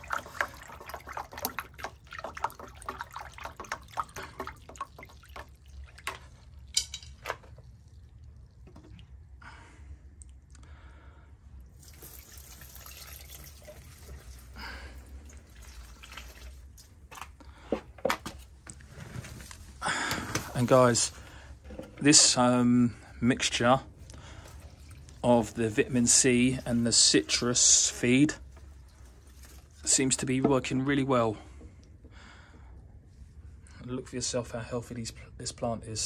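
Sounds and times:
stick stirring liquid in jug: 0.0s - 9.3s, 11.8s - 18.3s, 24.3s - 30.7s
liquid trickling onto soil: 0.0s - 9.4s, 11.7s - 17.6s, 23.9s - 30.4s.

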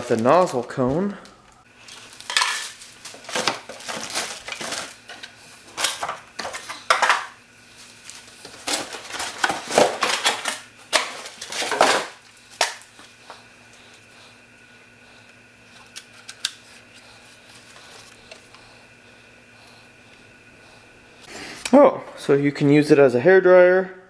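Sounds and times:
rustling and clatter: 1.8s - 12.2s.

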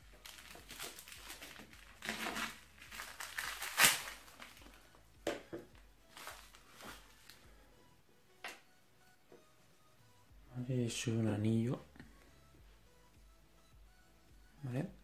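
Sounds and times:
plastic crinkling: 0.0s - 5.0s, 6.1s - 7.4s
knife slitting plastic envelope: 0.2s - 4.6s.

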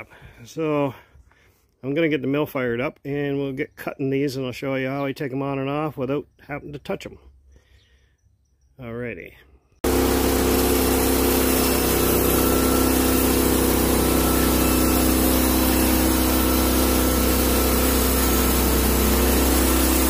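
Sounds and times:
band sawmill cutting wood: 9.8s - 20.0s.

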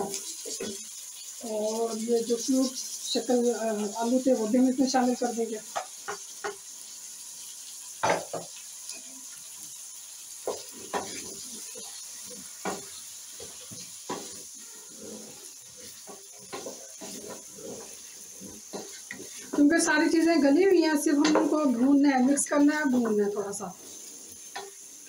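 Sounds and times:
spatula stirring and scraping: 0.0s - 4.4s, 10.4s - 24.8s
food sizzling in a pan: 0.0s - 25.0s
spatula knocking against pan: 12.6s - 14.4s, 15.9s - 19.7s, 21.2s - 21.6s.

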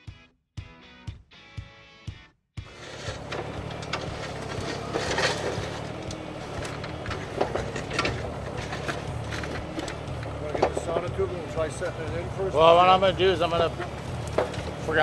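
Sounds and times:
excavator diesel engine running: 2.6s - 15.0s
stones and dirt knocking and scraping: 2.7s - 12.2s, 13.2s - 15.0s.

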